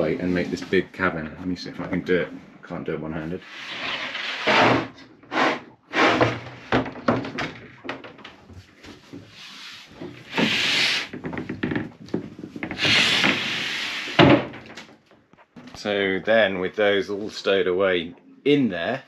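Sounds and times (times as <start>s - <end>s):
wooden panels sliding scrape: 3.4s - 6.9s, 9.2s - 11.2s, 12.7s - 14.4s
wooden panels knocking: 6.1s - 8.6s.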